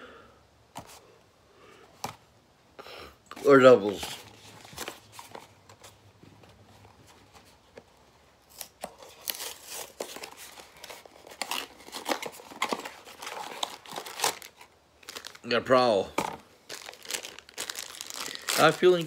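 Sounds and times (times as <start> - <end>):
plastic packaging crinkling: 8.5 - 15.5, 16.1 - 19.0.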